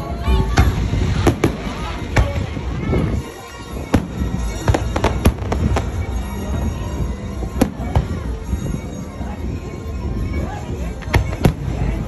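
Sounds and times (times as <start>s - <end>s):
fireworks bangs: 0.4s - 8.6s.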